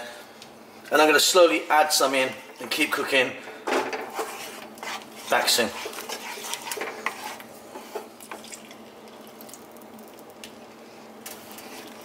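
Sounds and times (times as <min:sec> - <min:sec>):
wooden spoon stirring: 0:01.6 - 0:08.5, 0:11.4 - 0:12.0.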